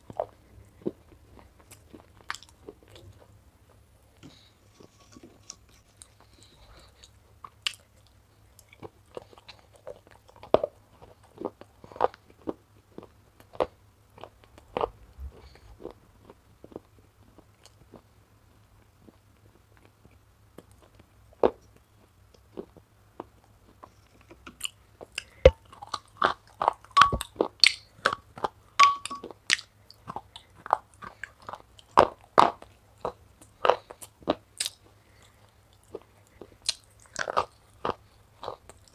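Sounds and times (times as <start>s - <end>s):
sticky chewing and mouth smacks: 5.1s - 18.0s
spoon in glass bowl: 27.0s - 27.2s, 28.8s - 29.3s.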